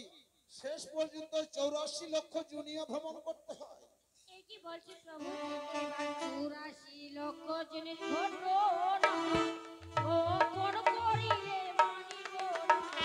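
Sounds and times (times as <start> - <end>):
sharp percussion strikes: 9.0 - 13.0.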